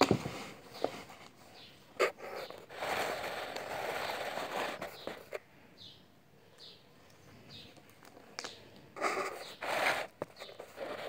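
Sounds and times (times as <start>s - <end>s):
paper notebook rustling: 0.0s - 5.4s, 9.0s - 11.0s.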